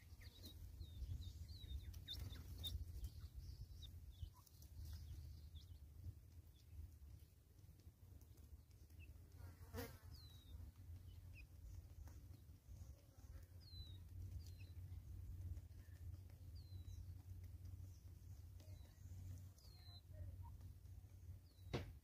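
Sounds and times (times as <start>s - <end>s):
bird chirps: 0.0s - 5.9s, 10.1s - 12.9s, 13.6s - 15.0s, 16.2s - 20.6s.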